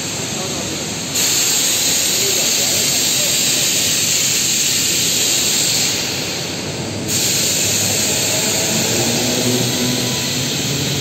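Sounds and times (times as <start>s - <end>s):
crane hissing and rushing: 0.0s - 11.0s.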